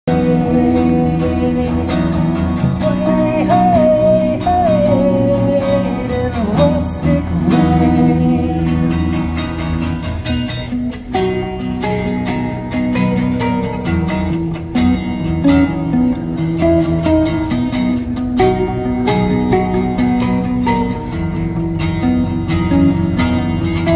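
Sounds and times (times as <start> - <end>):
acoustic guitar: 0.0 - 23.9
electric guitar: 0.0 - 23.9.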